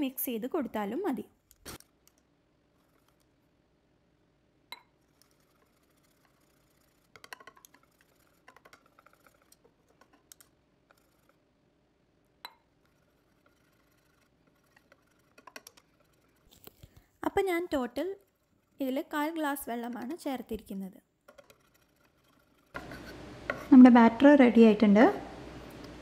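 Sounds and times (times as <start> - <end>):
whisk clicking against bowl: 4.8 - 11.4, 12.4 - 16.5.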